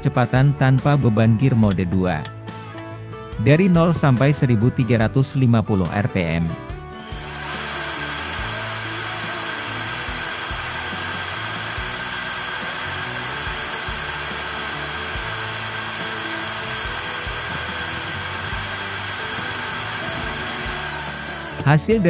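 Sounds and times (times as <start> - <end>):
background music: 0.0 - 22.0
cordless drill running: 7.0 - 21.7.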